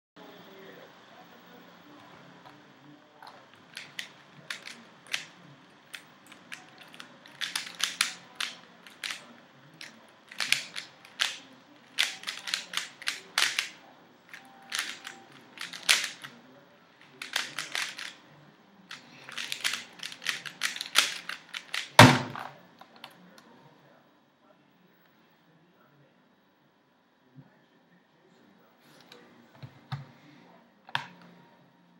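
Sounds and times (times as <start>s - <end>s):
plastic puzzle cube clicking: 3.6s - 5.3s, 5.9s - 13.8s, 14.7s - 16.3s, 17.2s - 18.2s, 18.9s - 22.4s
cube thump on surface: 21.8s - 22.6s.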